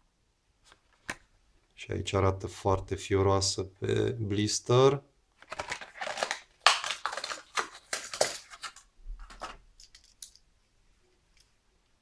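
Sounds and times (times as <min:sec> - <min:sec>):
plastic packaging crackling and ripping: 0:05.4 - 0:10.3.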